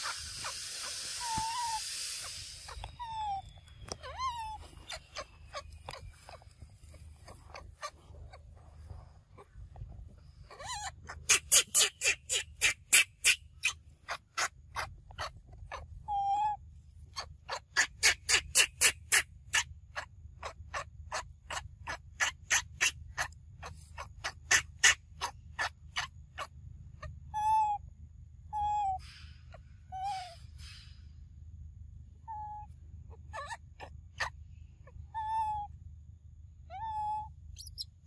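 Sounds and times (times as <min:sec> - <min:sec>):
rapid clicking animal calls: 0:00.0 - 0:08.5, 0:10.5 - 0:16.4, 0:17.1 - 0:27.2.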